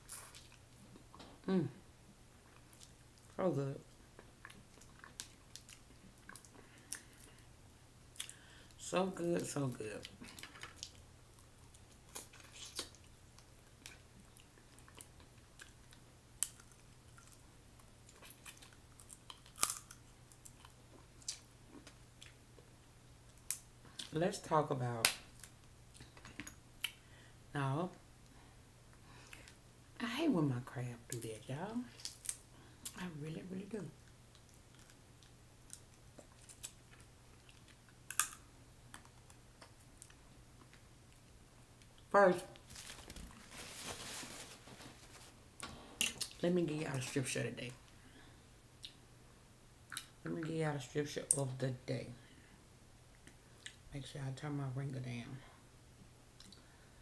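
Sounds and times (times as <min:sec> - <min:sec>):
soft chewing: 0:00.0 - 0:01.5, 0:02.4 - 0:07.5, 0:08.1 - 0:08.8, 0:10.0 - 0:24.2, 0:25.4 - 0:27.1, 0:34.0 - 0:45.4, 0:49.8 - 0:50.2, 0:53.1 - 0:53.8, 0:56.4 - 0:56.8
crab shell cracking and snapping: 0:18.2 - 0:22.0, 0:38.0 - 0:40.2.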